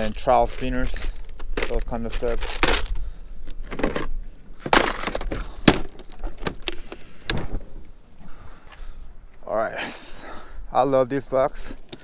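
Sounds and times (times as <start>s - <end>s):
plastic boxes clattering: 3.6s - 7.6s.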